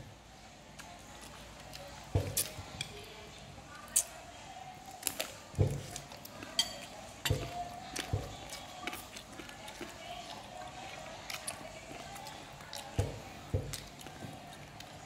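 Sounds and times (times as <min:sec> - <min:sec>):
spoon clinking against a bowl: 0:06.5 - 0:07.7.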